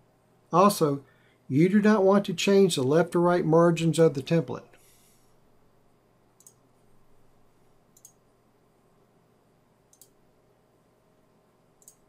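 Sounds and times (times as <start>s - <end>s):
faint computer mouse clicks: 6.4s - 6.6s, 8.0s - 8.2s, 9.9s - 10.2s, 11.8s - 12.0s.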